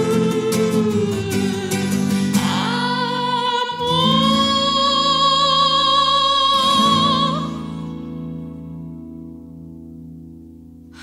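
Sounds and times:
woman singing high soprano: 0.0s - 8.2s.

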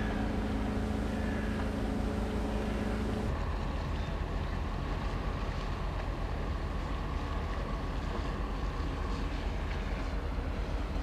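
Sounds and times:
faint steady hum: 0.0s - 3.6s.

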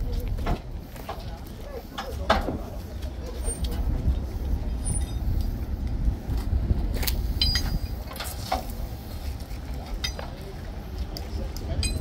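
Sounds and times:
steady low rumble: 0.0s - 12.0s
sharp clinks and knocks: 7.0s - 8.7s.

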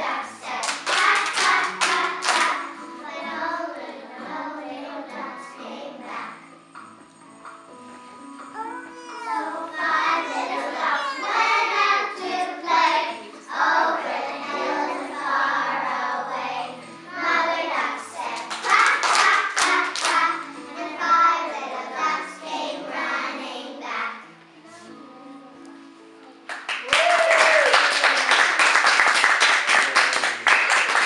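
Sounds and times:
children singing together: 0.0s - 6.6s, 8.6s - 25.6s
sharp claps: 0.6s - 2.6s, 18.4s - 20.2s, 26.5s - 31.0s.

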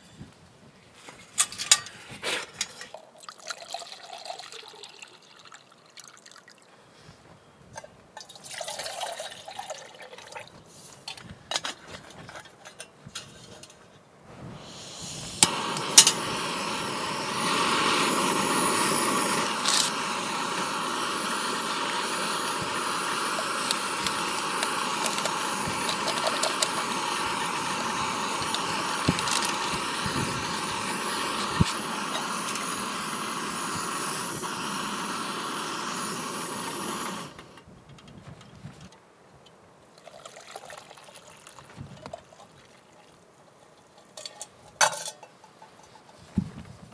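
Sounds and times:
gas stove burning: 14.3s - 37.6s
metal cookware clinking: 44.0s - 46.2s.

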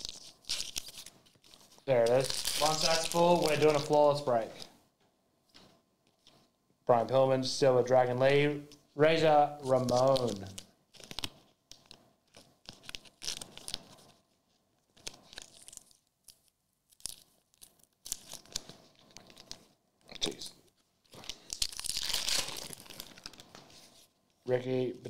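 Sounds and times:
foil card pack crinkling: 0.0s - 4.6s, 9.6s - 14.2s, 14.9s - 20.4s, 21.1s - 24.1s
plastic card sleeves rustling: 0.0s - 4.7s, 9.6s - 20.4s, 21.1s - 24.1s.

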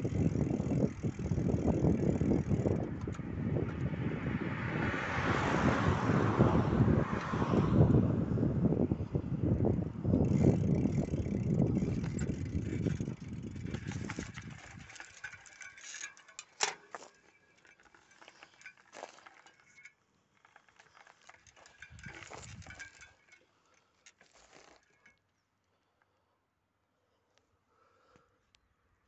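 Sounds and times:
wind buffeting microphone: 0.0s - 15.4s, 21.6s - 23.0s
clicks and light rattles: 2.6s - 3.9s, 10.2s - 25.4s.

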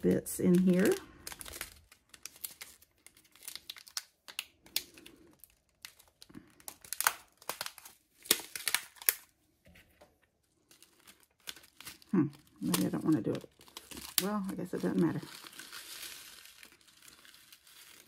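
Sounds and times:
plastic crinkling: 0.0s - 9.4s, 10.4s - 18.0s.

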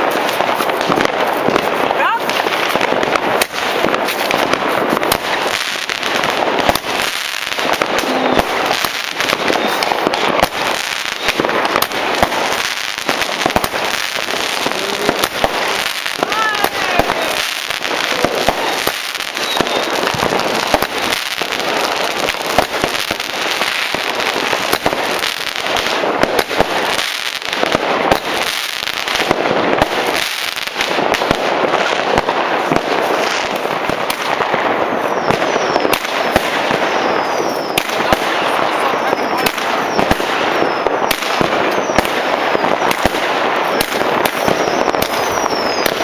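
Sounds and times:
fireworks bangs and crackling: 0.0s - 46.0s
falling whistles: 19.4s - 20.0s.

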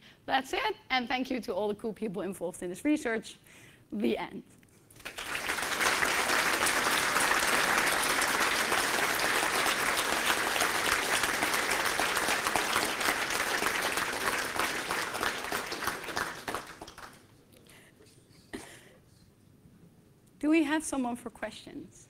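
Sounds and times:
audience applauding: 4.9s - 17.3s.

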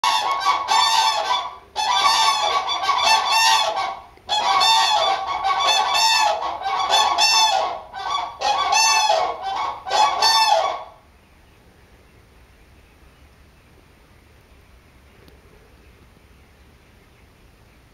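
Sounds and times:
cranes trumpeting calls: 0.0s - 11.1s.

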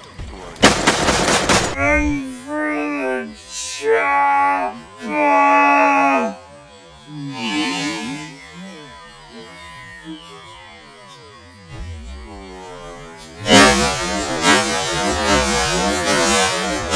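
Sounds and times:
rifle shots: 0.6s - 2.2s
low wavering drone: 1.7s - 16.9s.

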